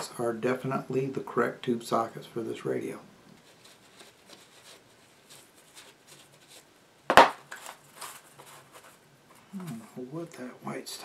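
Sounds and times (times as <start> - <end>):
paper towel wiping: 3.4 - 6.8.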